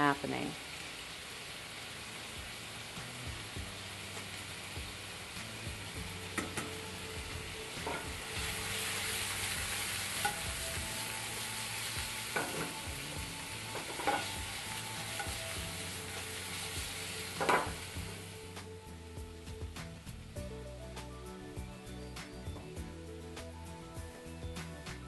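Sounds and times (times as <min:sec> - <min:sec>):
chicken sizzling in a frying pan: 0:00.0 - 0:20.4
metal tongs clinking on pan: 0:07.8 - 0:08.1, 0:10.2 - 0:10.6, 0:12.4 - 0:12.8, 0:13.7 - 0:14.4, 0:17.4 - 0:17.8.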